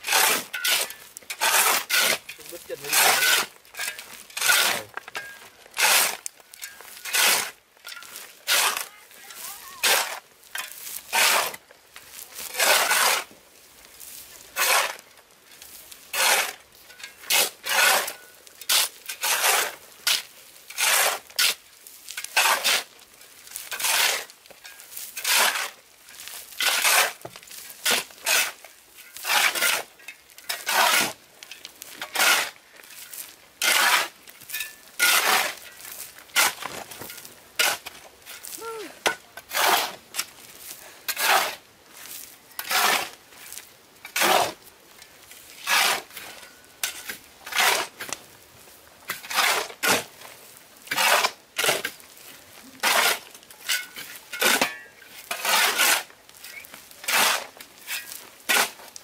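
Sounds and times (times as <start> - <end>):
hand tool rasping wood: 0.0 - 5.0, 5.8 - 6.3, 7.0 - 7.6, 8.5 - 10.2, 11.1 - 11.6, 12.4 - 13.3, 14.6 - 15.0, 16.1 - 16.6, 17.3 - 20.2, 20.8 - 21.6, 22.4 - 22.9, 23.7 - 24.3, 25.2 - 25.8, 26.6 - 27.3, 29.2 - 29.9, 30.5 - 31.2, 32.1 - 32.6, 33.6 - 34.1, 35.0 - 35.6, 38.5 - 40.0, 41.1 - 41.6, 42.6 - 43.2, 45.6 - 46.1, 47.5 - 48.0, 50.9 - 51.9, 52.8 - 53.3, 55.3 - 56.1.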